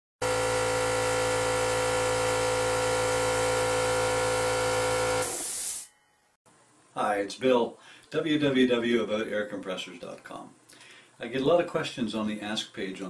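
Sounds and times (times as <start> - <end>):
air compressor humming: 0.2 - 5.9
air hissing: 5.1 - 5.9.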